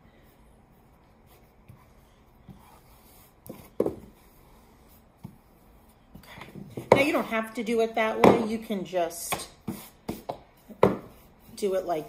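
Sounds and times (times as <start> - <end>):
rolling pin scraping on pastry mat: 9.6 - 12.0.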